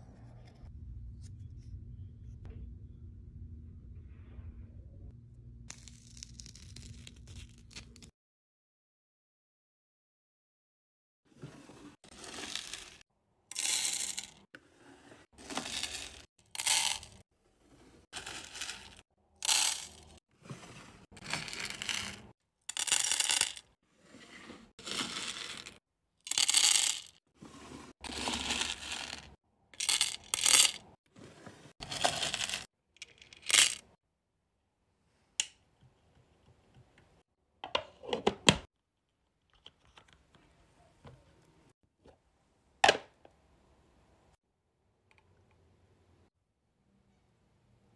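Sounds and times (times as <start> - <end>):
wax beads pouring: 15.4 - 17.2, 18.2 - 20.1, 24.8 - 27.1.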